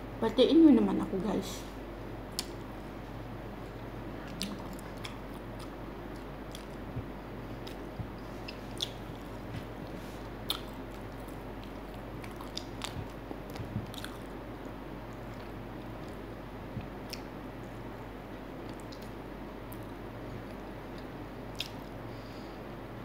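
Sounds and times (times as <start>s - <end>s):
person chewing crispy food: 4.2s - 16.2s, 18.6s - 22.0s.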